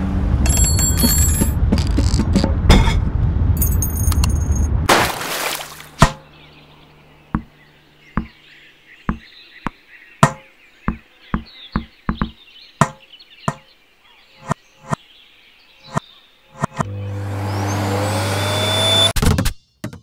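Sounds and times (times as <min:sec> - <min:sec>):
sharp knocks: 0:08.2 - 0:08.4, 0:09.1 - 0:09.3, 0:10.2 - 0:13.7.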